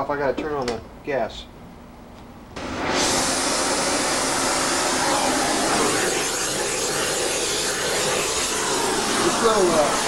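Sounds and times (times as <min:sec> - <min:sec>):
gas torch hissing: 0:02.6 - 0:10.0.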